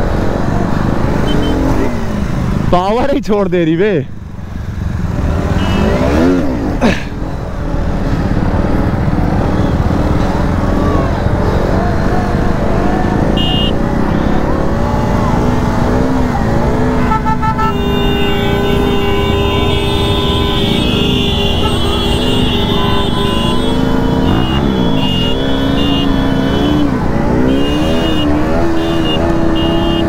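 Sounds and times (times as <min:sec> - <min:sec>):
rider talking: 0:02.5 - 0:04.3
motorcycle engine revving hard: 0:04.8 - 0:30.0.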